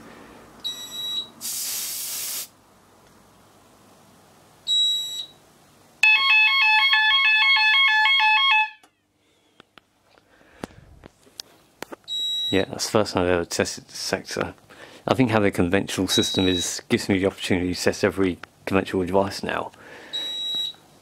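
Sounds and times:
aerosol spray hiss: 0:01.4 - 0:02.6
fire alarm two-tone warble: 0:06.0 - 0:08.9.

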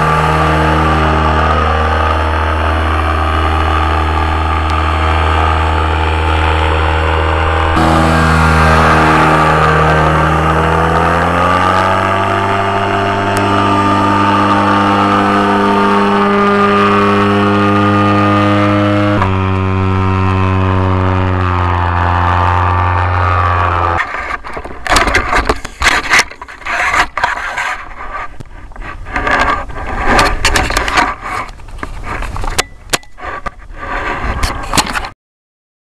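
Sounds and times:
two-stroke engine running: 0:00.0 - 0:24.0
camera handling scrapes and knocks: 0:24.0 - 0:35.1.

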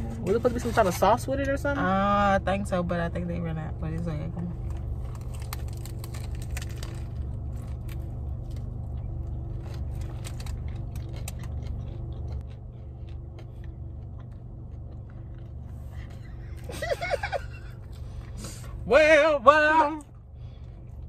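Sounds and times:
steady low hum: 0:00.0 - 0:21.0
chewing and biting food: 0:04.6 - 0:16.8
foil wrapper crinkling: 0:04.9 - 0:08.7.

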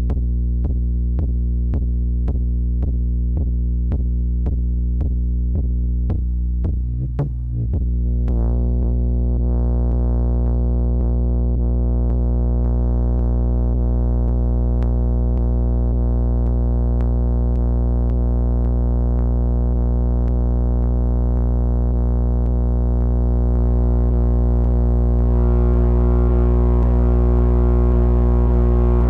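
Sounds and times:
synthesizer low drone: 0:07.5 - 0:29.0.

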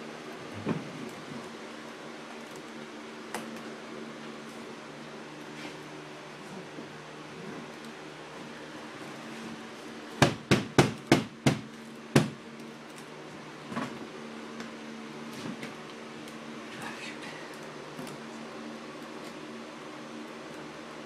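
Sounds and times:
sharp knocks on window pane: 0:10.2 - 0:12.4.

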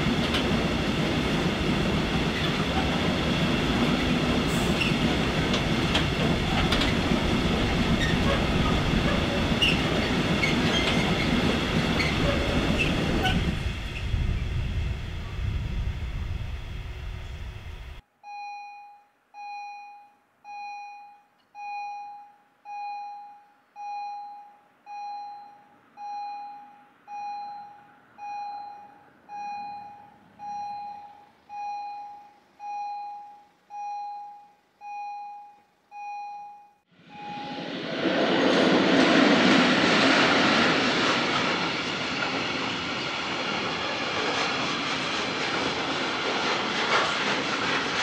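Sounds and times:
freight train rumbling: 0:00.0 - 0:18.0, 0:36.9 - 0:48.0
level crossing warning bell: 0:18.2 - 0:37.6.

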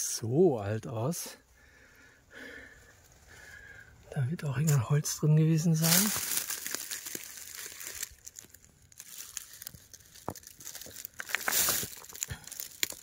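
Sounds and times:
rustling and crunching of debris: 0:04.4 - 0:13.0.

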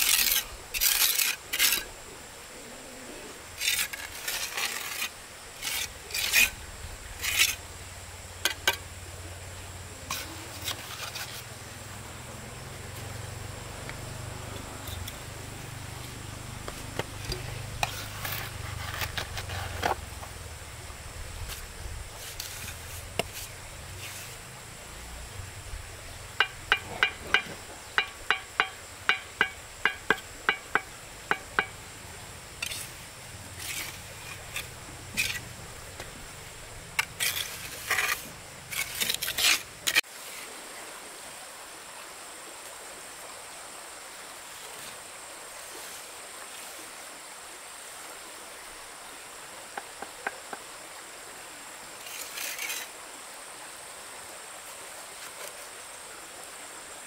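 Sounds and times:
faint hiss: 0:00.0 - 0:57.0
scraping and rustling: 0:03.6 - 0:06.6, 0:10.1 - 0:11.6, 0:16.0 - 0:20.3, 0:21.4 - 0:24.5, 0:32.6 - 0:33.0, 0:33.6 - 0:35.5, 0:37.0 - 0:40.5
sharp knocks: 0:26.4 - 0:31.8.

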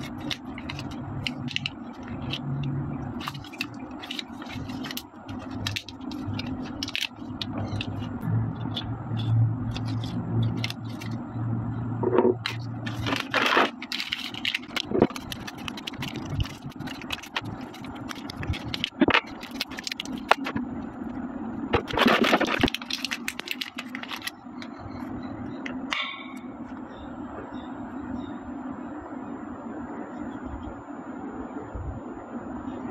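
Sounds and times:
plastic packaging crinkling: 0:00.0 - 0:11.2, 0:12.4 - 0:25.1
plastic parts clicking together: 0:00.0 - 0:11.2, 0:12.4 - 0:20.6, 0:21.7 - 0:24.7.

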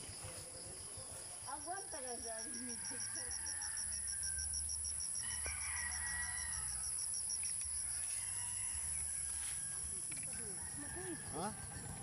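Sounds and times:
high insect drone: 0:00.0 - 0:12.0
rooster crowing: 0:02.3 - 0:12.0.

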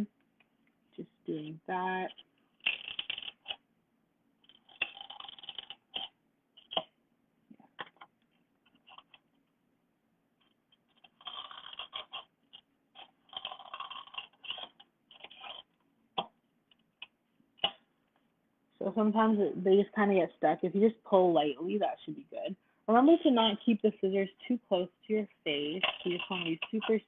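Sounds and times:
scissors snipping styrofoam: 0:25.6 - 0:27.0.

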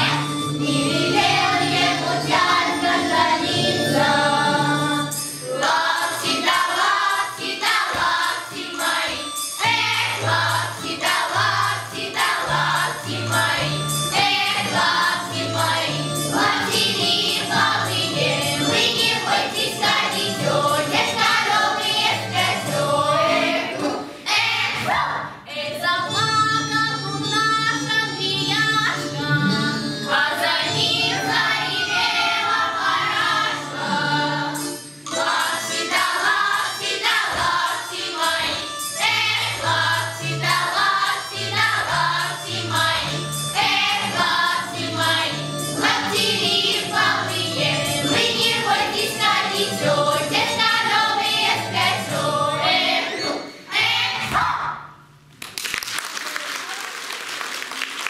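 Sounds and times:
girls singing folk song in chorus: 0:00.0 - 0:26.3, 0:28.3 - 0:54.7
instrumental backing track: 0:25.9 - 0:53.7.

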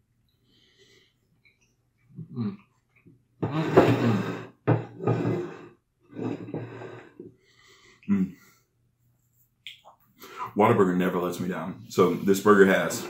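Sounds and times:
person making muffled vocal sounds: 0:02.2 - 0:02.6, 0:08.1 - 0:08.4.

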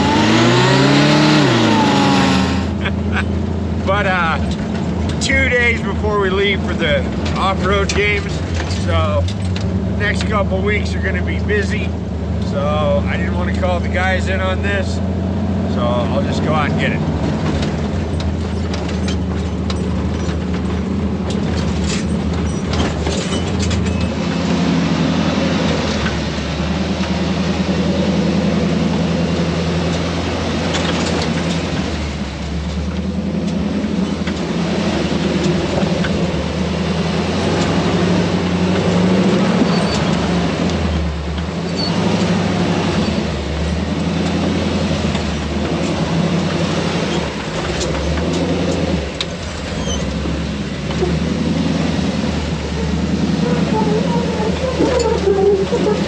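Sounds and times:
truck engine running slowly: 0:02.7 - 0:56.0.

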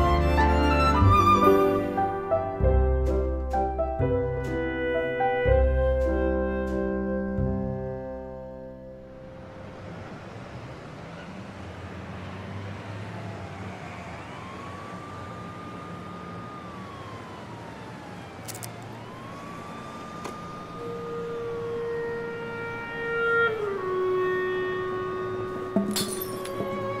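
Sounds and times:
music score with long held notes: 0:00.0 - 0:09.7, 0:20.7 - 0:27.0
emergency siren wailing: 0:04.6 - 0:27.0.

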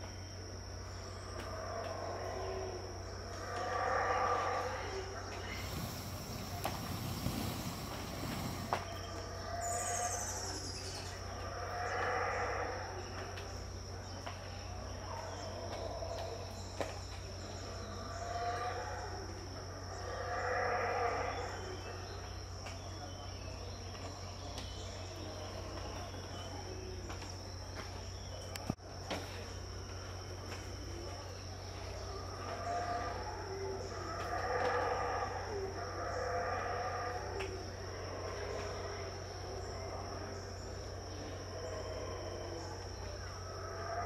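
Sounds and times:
high insect drone: 0:00.0 - 0:44.0
howler monkeys roaring: 0:01.0 - 0:13.5, 0:17.4 - 0:22.3, 0:31.7 - 0:44.0.

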